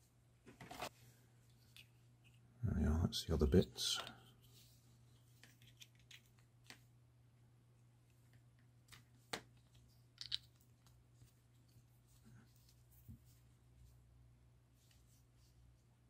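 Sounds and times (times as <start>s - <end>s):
plastic caps clicking: 8.9s - 10.9s.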